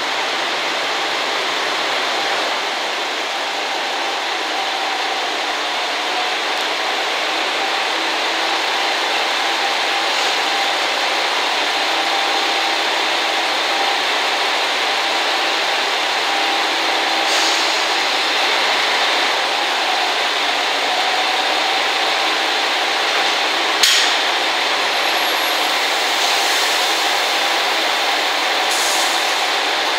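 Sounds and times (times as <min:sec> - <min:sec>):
diesel railcars humming: 0:00.0 - 0:29.9
train couplers clunking: 0:23.1 - 0:25.7.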